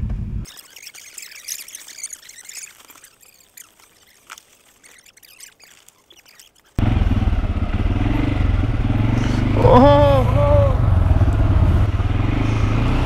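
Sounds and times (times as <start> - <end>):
faint high chirps and ticks: 0.5 - 6.8
motorcycle engine running: 6.8 - 13.0.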